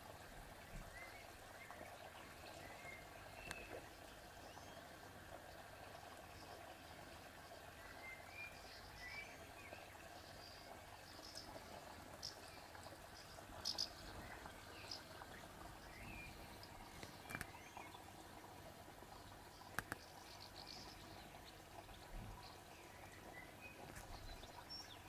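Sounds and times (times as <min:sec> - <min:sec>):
steady low hiss: 0:00.0 - 0:25.0
sharp clicks: 0:19.7 - 0:20.1.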